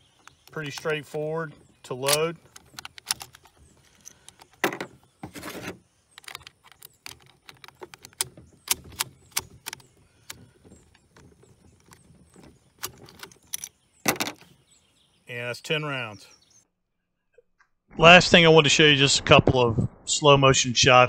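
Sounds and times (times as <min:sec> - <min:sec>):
cartridges clicking into rifle magazine: 0:02.0 - 0:04.6, 0:06.2 - 0:10.4, 0:12.8 - 0:13.8.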